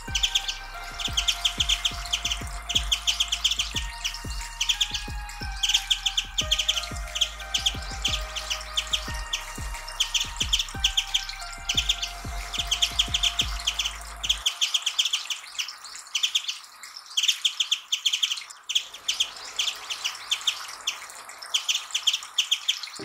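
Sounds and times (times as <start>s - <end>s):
low background music: 0.0s - 15.2s
bird singing high trills: 0.0s - 16.6s.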